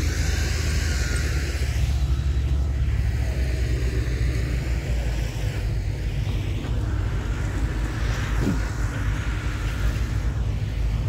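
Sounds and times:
diesel engines rumbling: 0.0 - 11.0.

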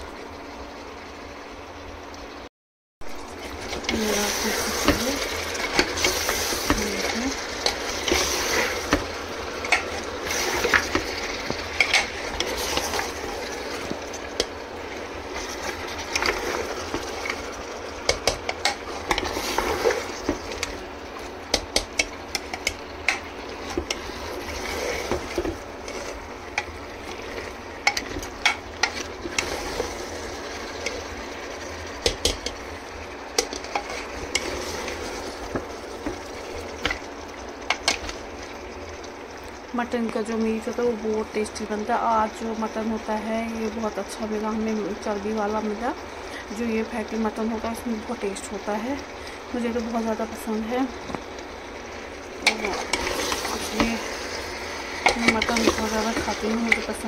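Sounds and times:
meat sizzling in a pot: 0.0 - 57.0
spoon scraping a pot: 52.4 - 54.2.

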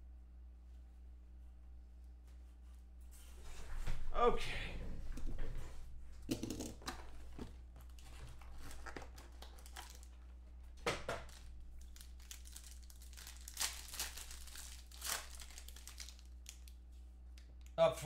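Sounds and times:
foil wrapper crinkling: 7.8 - 10.3, 11.1 - 16.8.

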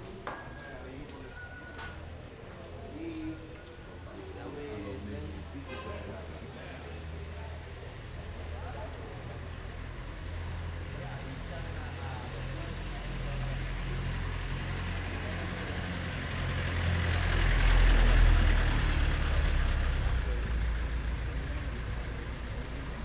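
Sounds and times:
vehicle engine passing: 10.2 - 23.0.

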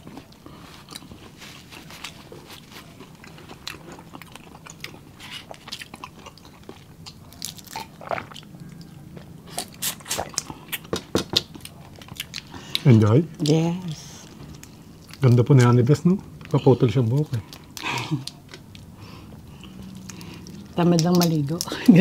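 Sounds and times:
chewing and crunching: 0.0 - 22.0
shrimp shells crackling: 20.0 - 22.0.

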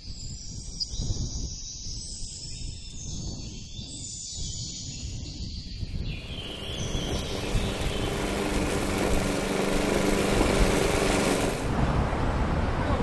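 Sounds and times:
high rushing hiss: 6.2 - 11.8
motor humming: 6.2 - 11.8.

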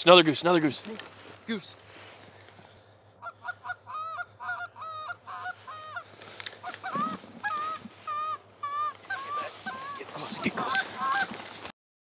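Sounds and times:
goose honks: 3.2 - 11.3.

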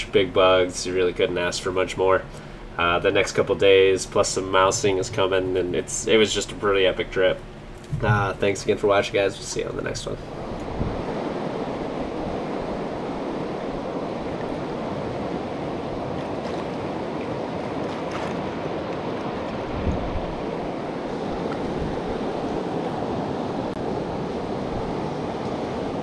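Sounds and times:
low bump: 7.9 - 8.5
wind on microphone: 10.3 - 26.0.

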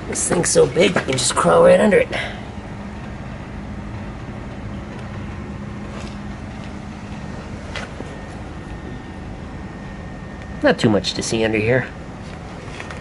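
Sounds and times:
shop background hum: 0.0 - 13.0.

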